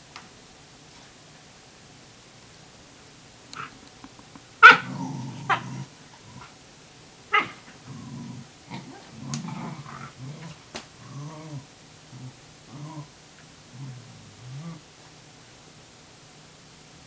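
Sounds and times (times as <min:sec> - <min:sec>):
dog yapping: 0:04.6 - 0:05.7, 0:07.3 - 0:07.7
dog growling: 0:04.6 - 0:06.6, 0:07.3 - 0:14.9.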